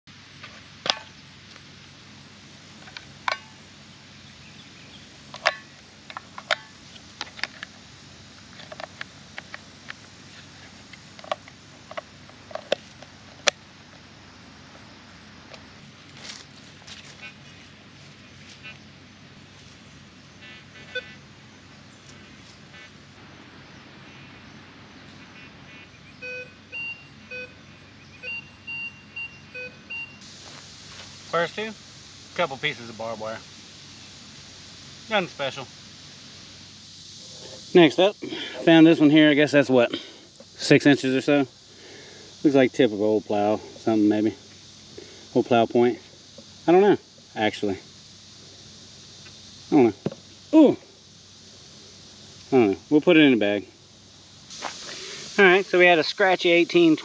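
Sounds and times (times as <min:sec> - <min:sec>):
faint background hiss: 0:00.1 - 0:57.0
metal detector beeps: 0:20.4 - 0:21.2, 0:26.2 - 0:27.6, 0:28.2 - 0:30.2.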